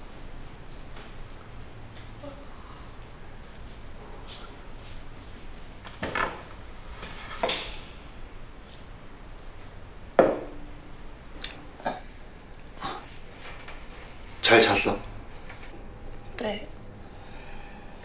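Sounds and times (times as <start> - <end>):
glass knocking on wooden table: 10.2 - 10.6.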